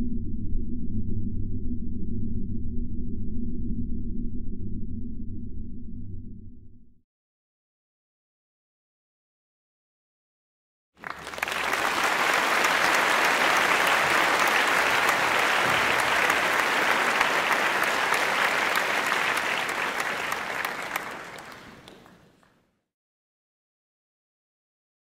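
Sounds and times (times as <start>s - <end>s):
crowd applause: 11.0s - 22.6s.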